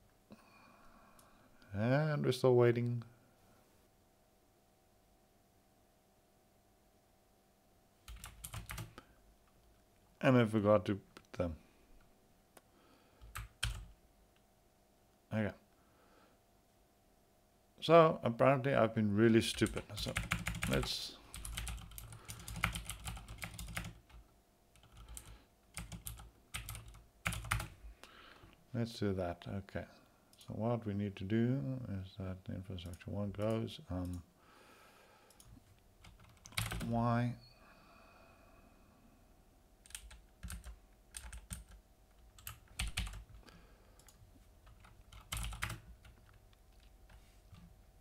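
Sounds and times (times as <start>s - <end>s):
computer keyboard typing: 8.1s - 8.9s, 13.2s - 13.9s, 19.5s - 24.2s, 24.8s - 27.7s, 35.3s - 36.9s, 39.8s - 43.4s, 44.0s - 47.7s
keyboard typing clicks: 21.4s - 24.2s, 42.4s - 43.3s, 44.0s - 46.9s.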